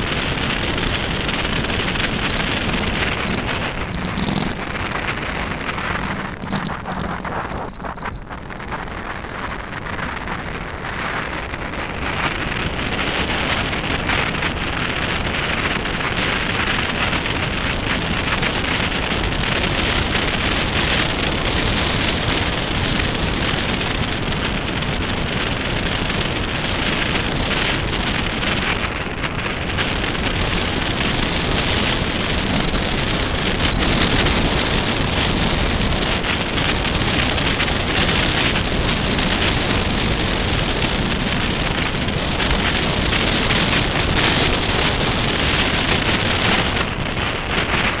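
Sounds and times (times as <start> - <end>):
bike tyres crunching gravel: 0.0 - 10.0
wind rumble on microphone: 0.0 - 48.0.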